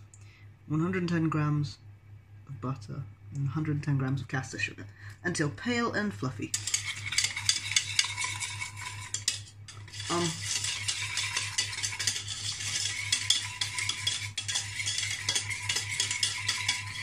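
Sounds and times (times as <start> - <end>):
whisk clicking against metal pan: 6.5 - 17.0.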